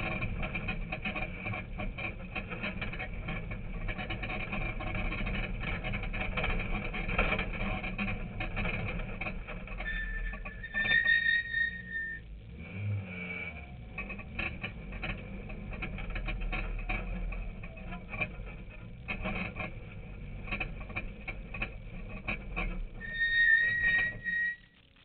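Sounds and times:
rattles and knocks from car: 0:00.0 - 0:10.6, 0:13.8 - 0:23.0
car engine running low: 0:00.0 - 0:25.0.

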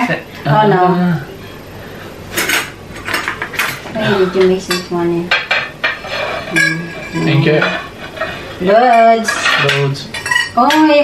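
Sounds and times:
metal utensils clinking on plates: 0:02.3 - 0:11.0.

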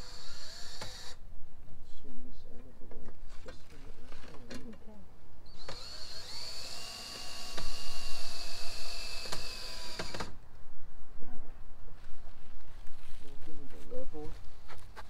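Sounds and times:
power drill whining into wood: 0:00.0 - 0:01.2, 0:05.5 - 0:10.4.

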